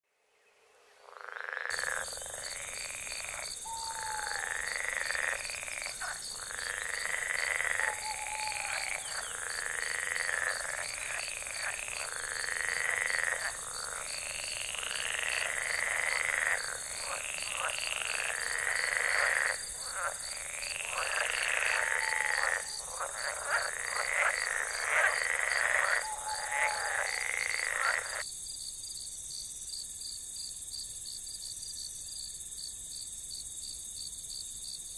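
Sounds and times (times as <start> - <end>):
frogs croaking: 1.0 - 28.3
insects chirping: 1.0 - 34.9.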